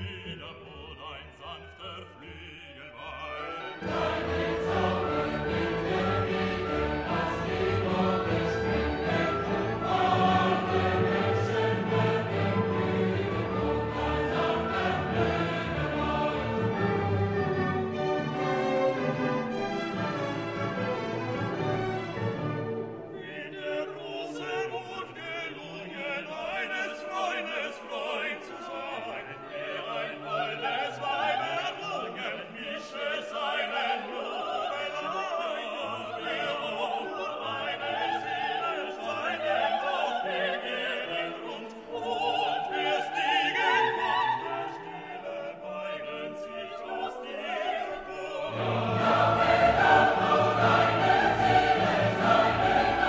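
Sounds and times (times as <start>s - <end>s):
operatic voice singing: 0.0s - 17.2s, 23.1s - 53.0s
orchestra playing: 2.9s - 25.4s, 48.1s - 53.0s.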